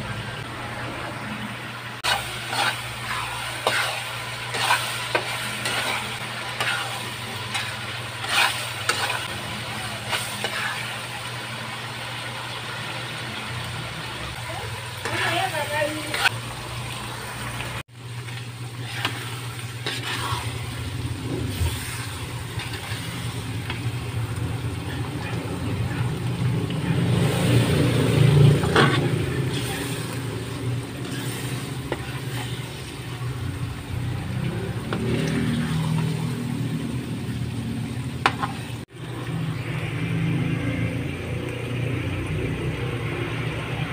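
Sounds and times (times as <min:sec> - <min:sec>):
paste sizzling in oil: 0:01.8 - 0:43.8.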